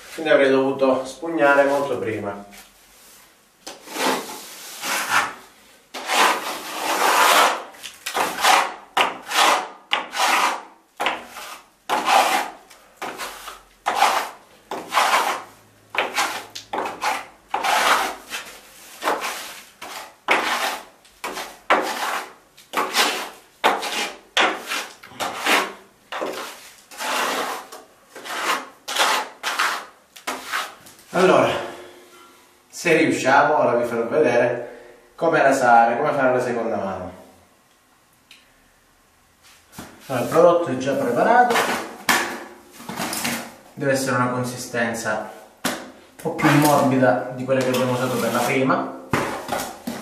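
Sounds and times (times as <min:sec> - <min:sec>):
plastering float scraping plaster: 0:03.7 - 0:31.2, 0:39.7 - 0:43.6, 0:45.7 - 0:50.0.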